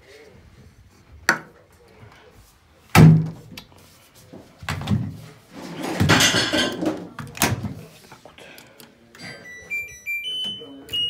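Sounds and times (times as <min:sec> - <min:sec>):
washing machine door thuds: 0:03.0 - 0:03.4
rustling scrape: 0:05.2 - 0:06.2.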